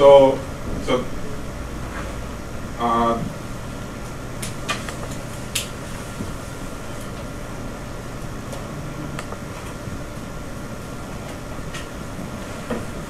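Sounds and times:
fan humming: 0.0 - 13.0.

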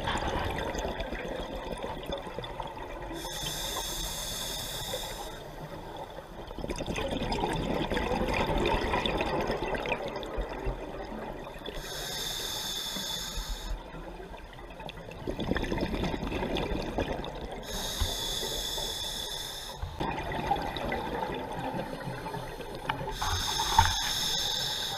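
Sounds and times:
regulator hissing inhalation: 3.2 - 5.4, 11.8 - 13.8, 17.6 - 20.0, 22.4 - 24.9
exhaled bubbles burbling: 6.4 - 11.7, 15.0 - 17.7, 20.0 - 22.0.

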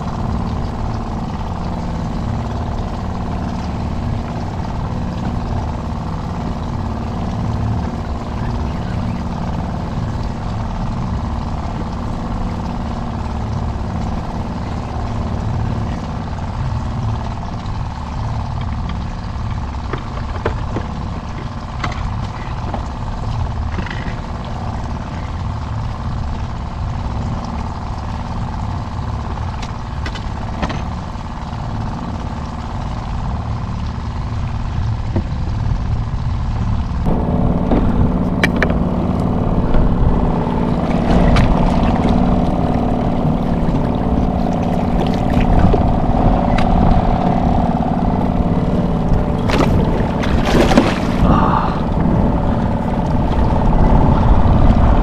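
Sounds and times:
steady hum: 0.0 - 55.0
wind buffeting microphone: 32.9 - 55.0.

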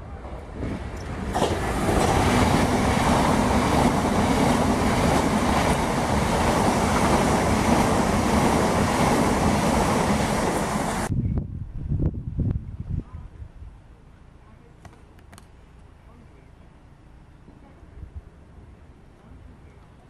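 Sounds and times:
train wheels on rails: 0.1 - 11.1.

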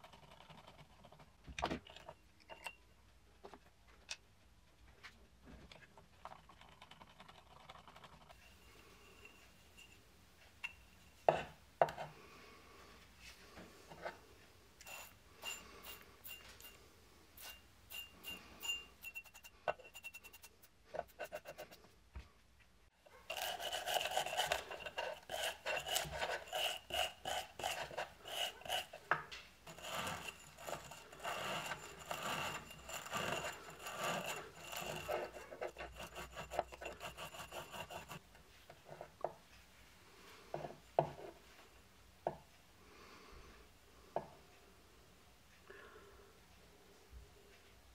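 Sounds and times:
scrubbing inside metal pot: 23.2 - 38.2.

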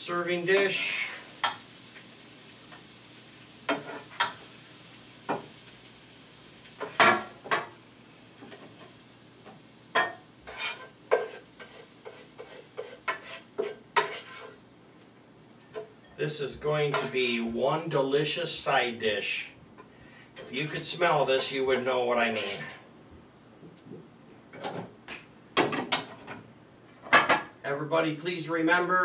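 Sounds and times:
faint sizzle: 0.0 - 29.0
spoon scraping a frying pan: 3.7 - 4.5, 9.9 - 14.6, 16.9 - 17.2, 20.3 - 20.8, 21.4 - 22.8.

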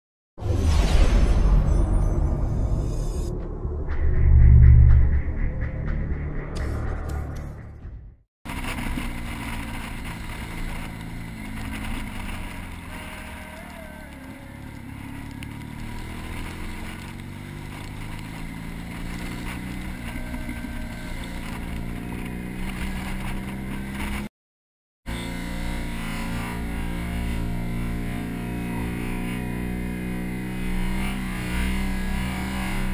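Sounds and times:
motorcycle engine running: 8.5 - 24.3, 25.1 - 32.9.

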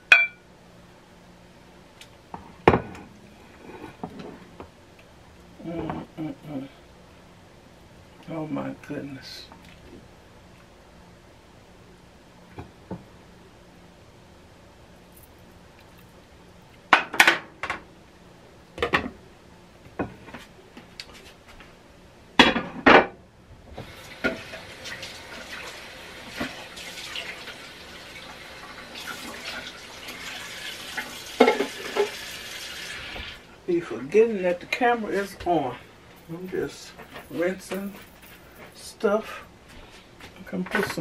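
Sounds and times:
kitchen tap running: 23.8 - 33.4
kitchenware clanking in a sink: 31.4 - 32.2.

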